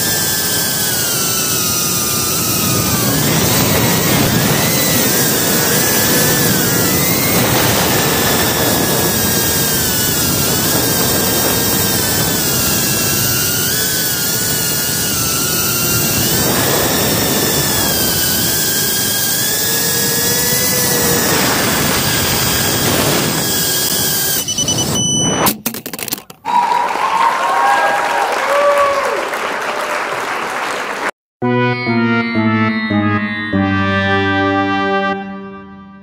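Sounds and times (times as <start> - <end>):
drone motors whining: 0.0 - 25.5
steady rushing noise: 0.1 - 23.8.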